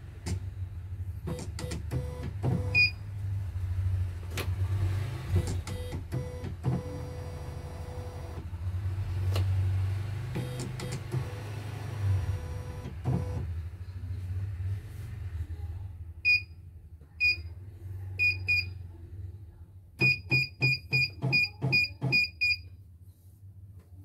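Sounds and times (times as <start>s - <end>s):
key beeps: 20.0s - 22.6s.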